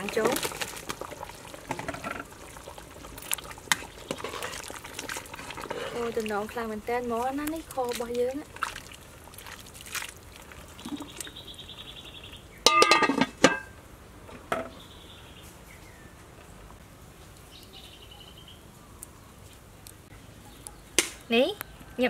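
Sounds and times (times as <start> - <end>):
metal pot lid clattering: 12.7 - 13.7.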